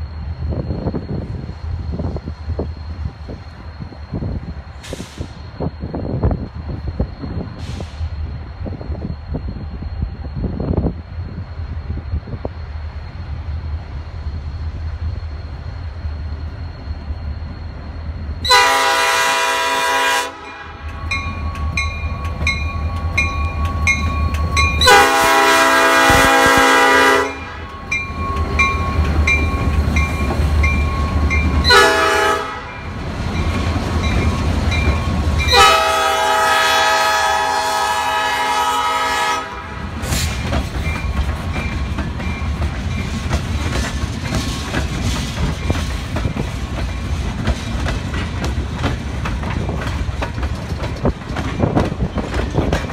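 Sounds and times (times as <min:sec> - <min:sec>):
train wheels clattering on rails: 0:18.0 - 0:36.6, 0:39.8 - 0:52.9
locomotive air horn blasts: 0:18.4 - 0:20.9, 0:24.8 - 0:27.7, 0:31.6 - 0:32.7, 0:35.5 - 0:39.8.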